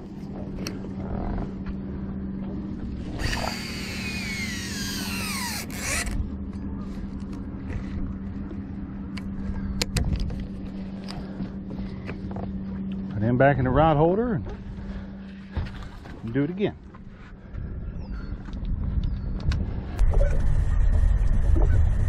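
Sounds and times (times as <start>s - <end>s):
low hum: 0.0s - 22.0s
fishing reel spool whirring: 3.0s - 6.3s
reel clicking: 3.2s - 6.2s.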